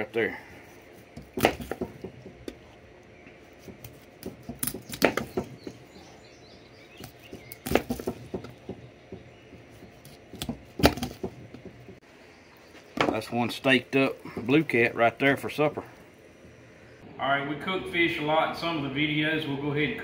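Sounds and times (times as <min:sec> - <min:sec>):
knife chopping fish bone: 0:01.2 - 0:02.6, 0:03.6 - 0:05.8, 0:07.0 - 0:12.0.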